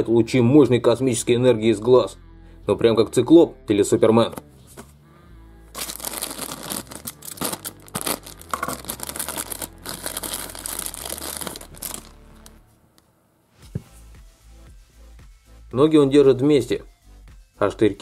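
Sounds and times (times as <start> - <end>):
plastic sachet crinkling and tearing: 5.8 - 12.6.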